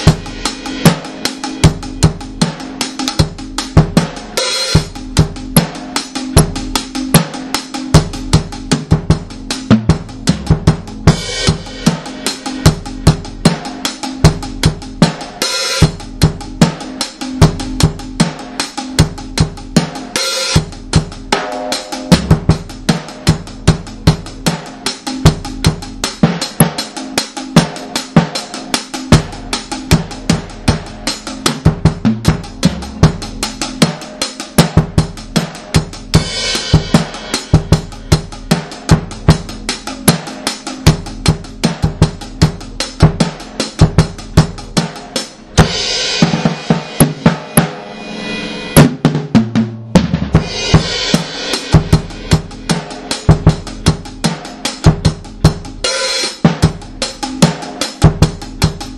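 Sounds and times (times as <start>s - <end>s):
bass drum: 0.0s - 58.9s
hissing cymbal wash: 45.6s - 48.8s.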